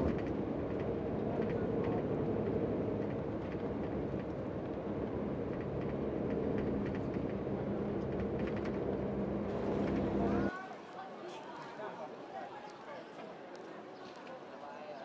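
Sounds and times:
coach engine and road noise: 0.0s - 10.5s.

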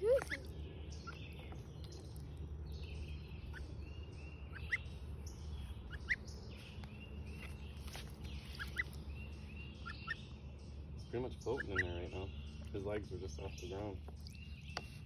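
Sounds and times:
gosling peeping: 0.0s - 10.4s, 11.1s - 15.0s.

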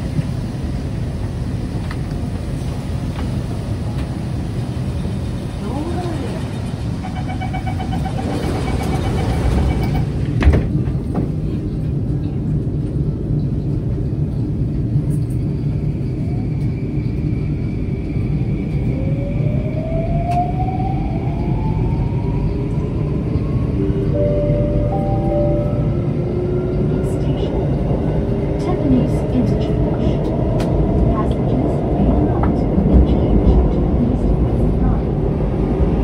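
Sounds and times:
train interior low rumble: 0.0s - 36.0s
train doors thudding shut: 8.3s - 11.6s.

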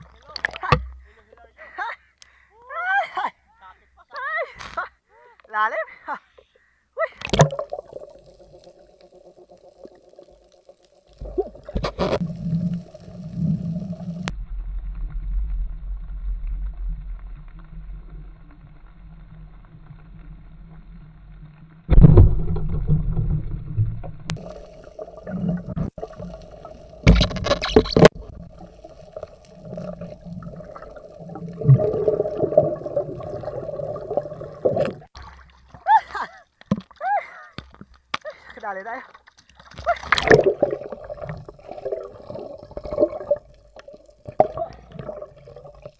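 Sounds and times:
muffled underwater rumble: 7.8s - 35.0s.

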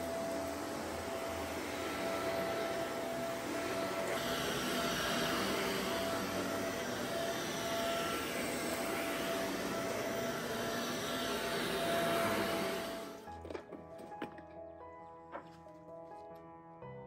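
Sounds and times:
vacuum cleaner running: 0.0s - 13.3s.

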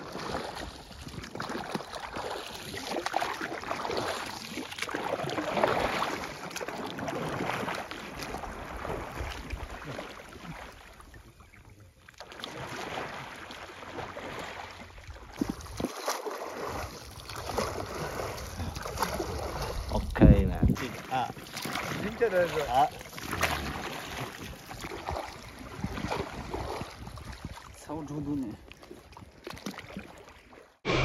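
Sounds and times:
paddles splashing water: 0.0s - 31.0s
wind on microphone: 18.6s - 20.9s, 25.0s - 27.8s.

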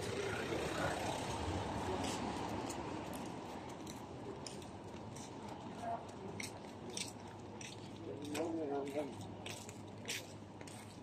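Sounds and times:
vehicle engine rumble: 0.0s - 8.2s.

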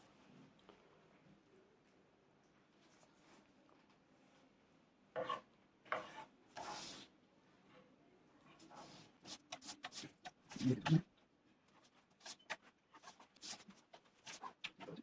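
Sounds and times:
knife scraping on cutting board: 5.2s - 7.0s, 8.7s - 11.0s, 12.2s - 15.0s.

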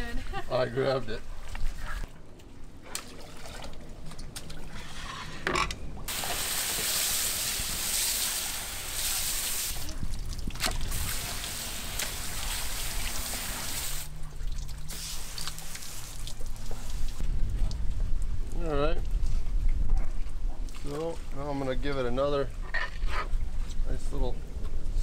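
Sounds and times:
hose nozzle spraying water: 6.1s - 9.9s, 10.7s - 14.1s.

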